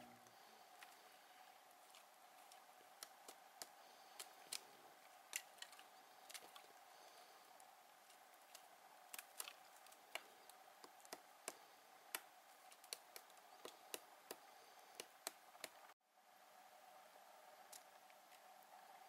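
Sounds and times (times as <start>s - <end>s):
faint steady hum: 0.0s - 19.0s
woodpecker tapping on trunk: 8.5s - 15.8s.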